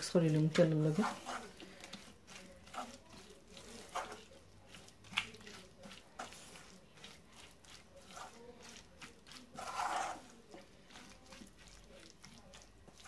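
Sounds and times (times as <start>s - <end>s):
spatula scraping paste in pan: 0.0s - 13.0s.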